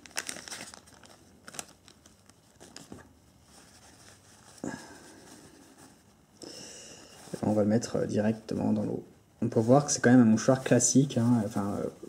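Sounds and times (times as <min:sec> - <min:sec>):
plastic sachet crinkling: 0:00.0 - 0:02.9
cloth rustling: 0:00.0 - 0:06.2, 0:07.1 - 0:12.0.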